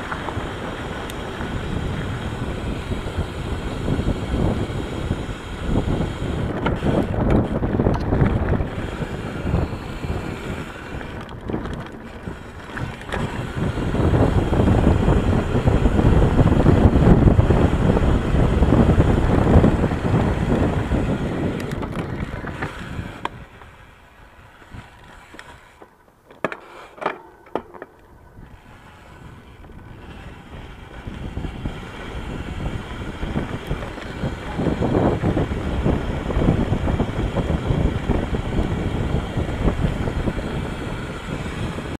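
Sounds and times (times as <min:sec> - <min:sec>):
tyres rolling over dirt: 0:00.0 - 0:03.9, 0:06.3 - 0:41.9
wind rushing on microphone: 0:00.0 - 0:25.7, 0:28.0 - 0:41.9
bike rattling: 0:00.0 - 0:41.9.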